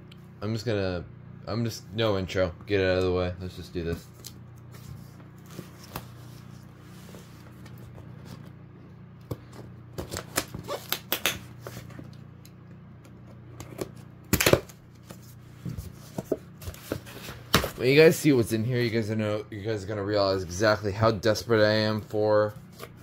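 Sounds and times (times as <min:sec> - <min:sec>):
scissors cutting packing tape: 0:10.0 - 0:11.4.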